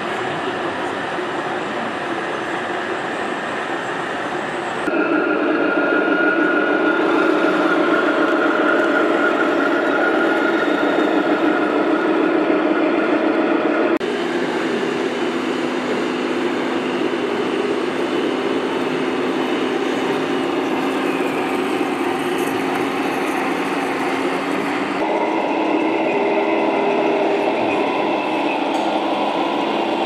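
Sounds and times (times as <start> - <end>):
electric drive whine: 4.9 - 30.0
toy vehicle engine drone: 6.2 - 12.5.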